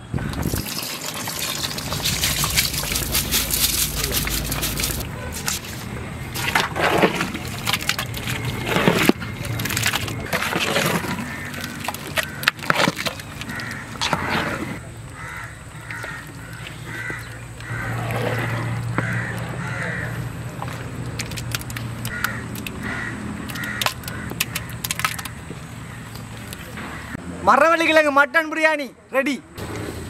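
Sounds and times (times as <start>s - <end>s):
steady low hum: 0.0s - 12.6s
crows cawing: 10.8s - 14.4s, 15.1s - 20.4s, 22.0s - 26.0s.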